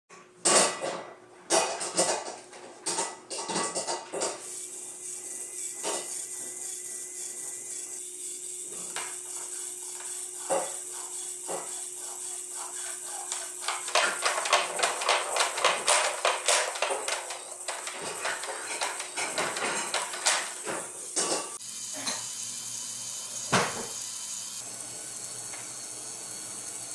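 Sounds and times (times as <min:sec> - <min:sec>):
motor humming: 0:04.4 - 0:15.4, 0:16.8 - 0:26.9.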